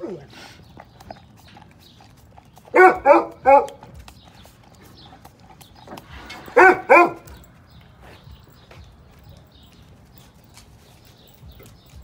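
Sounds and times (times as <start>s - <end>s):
dog licking from cup: 0.6s - 6.2s
dog barking: 2.7s - 3.8s, 6.4s - 7.4s.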